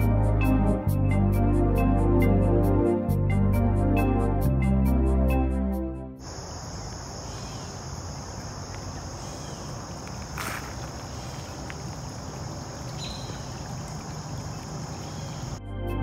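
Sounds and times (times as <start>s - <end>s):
insects droning: 6.2s - 15.7s.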